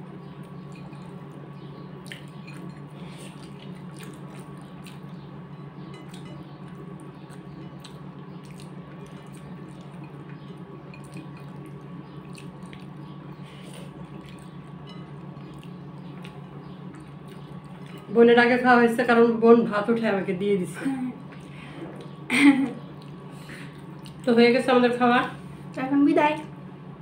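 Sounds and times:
low hum: 0:00.0 - 0:27.0
fingers mixing food on china plates: 0:00.4 - 0:18.4.

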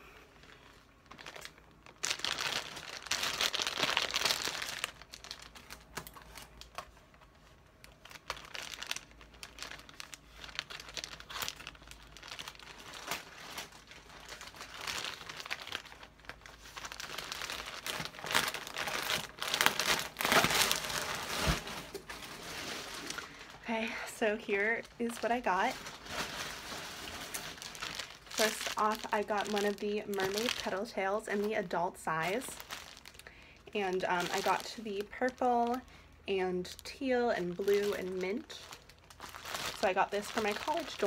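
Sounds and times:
plastic mailer crinkling: 0:00.4 - 0:36.0, 0:36.6 - 0:41.0.

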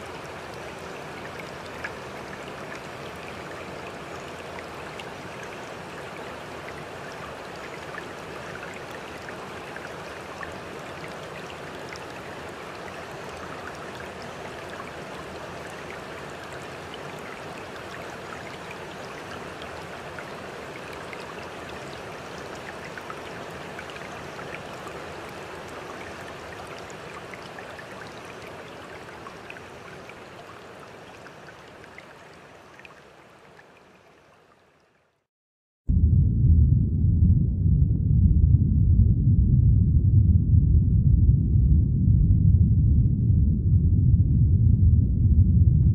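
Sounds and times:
rushing water: 0:00.0 - 0:35.2.

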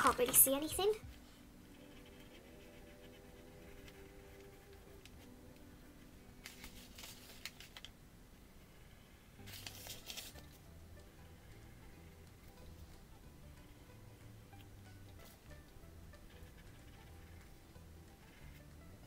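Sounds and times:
paper rustling: 0:06.4 - 0:07.9, 0:09.4 - 0:10.6.

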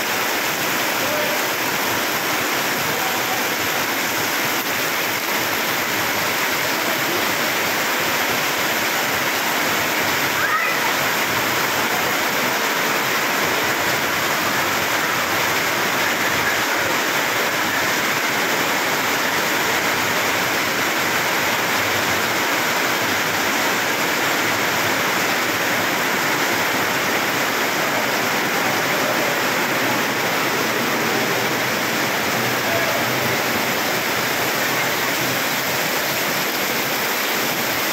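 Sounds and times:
heavy rain on a metal roof: 0:00.0 - 0:37.9
water pouring off roof edges: 0:00.0 - 0:37.9.

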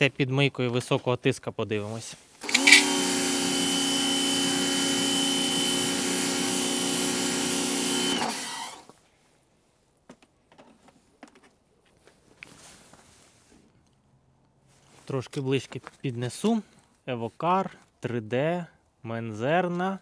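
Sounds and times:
pressure washer motor hum: 0:02.4 - 0:08.9.

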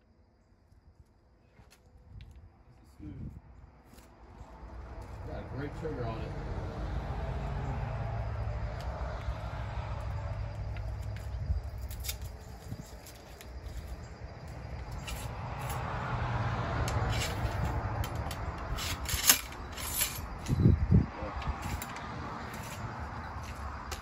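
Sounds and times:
ramrod scraping in barrel: 0:14.9 - 0:15.8, 0:16.8 - 0:20.6, 0:21.4 - 0:24.0.

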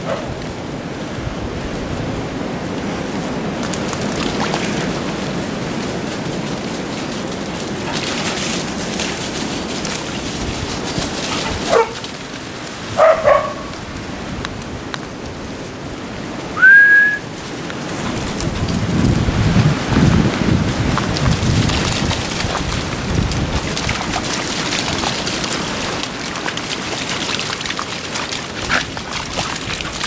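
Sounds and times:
steady rustling hiss: 0:04.9 - 0:13.0
dogs yelping and barking: 0:11.3 - 0:12.1, 0:13.0 - 0:13.8
short rising whistle: 0:16.6 - 0:17.2.

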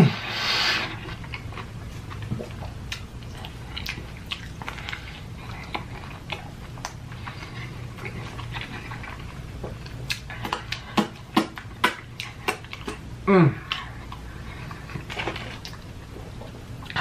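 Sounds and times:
wet open-mouthed chewing: 0:00.1 - 0:17.0
person moaning: 0:13.2 - 0:13.7.

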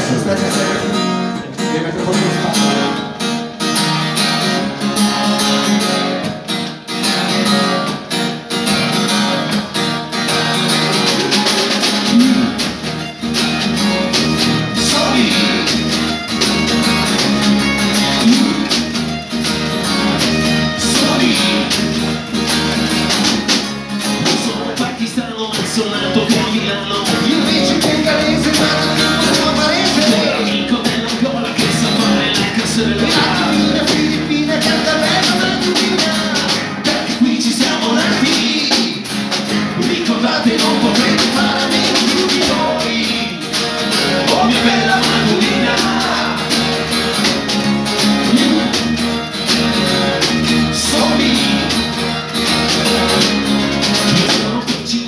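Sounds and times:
man singing: 0:00.0 - 0:03.1, 0:12.0 - 0:12.7, 0:14.7 - 0:16.0, 0:17.9 - 0:18.8, 0:20.8 - 0:22.1, 0:24.1 - 0:47.3, 0:48.1 - 0:48.8, 0:50.6 - 0:52.0, 0:54.0 - 0:55.0
acoustic bass guitar: 0:00.0 - 0:55.0
strummed acoustic guitars: 0:00.0 - 0:55.0.

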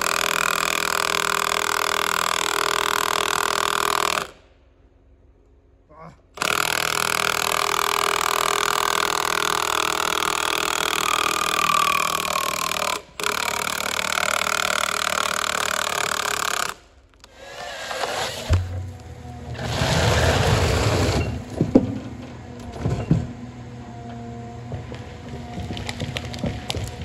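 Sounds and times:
chainsaw cutting tree trunk: 0:00.0 - 0:04.4, 0:06.4 - 0:18.5.

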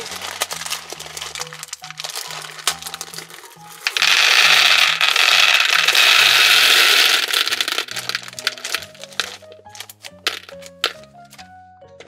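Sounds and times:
plastic beads pouring rattle: 0:00.0 - 0:11.1
single beads clicking: 0:03.8 - 0:11.1.

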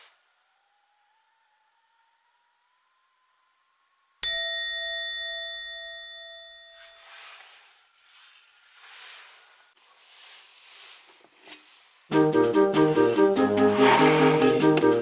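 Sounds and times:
bell ding: 0:04.2 - 0:07.4.

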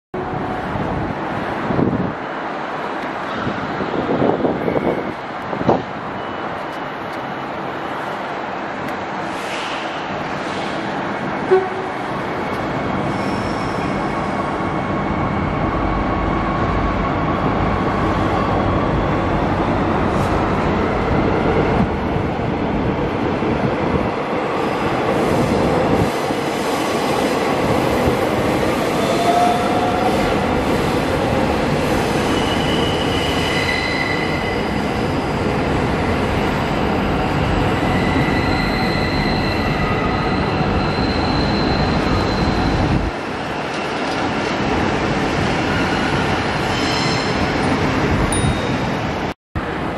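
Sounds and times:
train wheels on rail: 0:00.2 - 0:49.9
high wheel squeals: 0:12.5 - 0:14.2, 0:32.2 - 0:35.3, 0:36.9 - 0:43.1.

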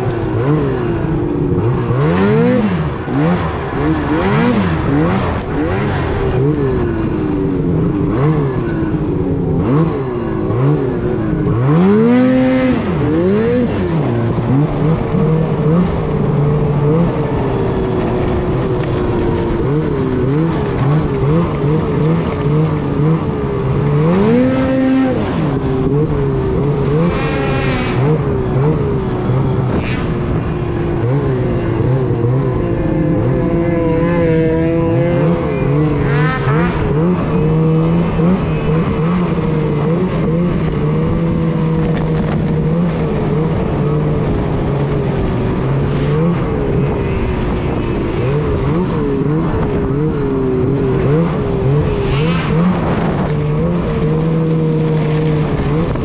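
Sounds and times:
snowmobile engine revving: 0:00.0 - 0:56.0.

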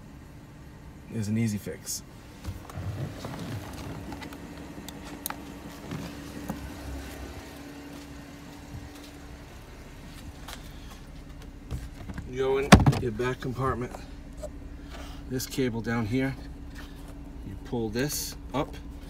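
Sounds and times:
faint steady hum: 0:00.0 - 0:19.0
footsteps: 0:02.4 - 0:09.4, 0:10.0 - 0:12.3
handling knocks and clicks: 0:11.3 - 0:13.2.

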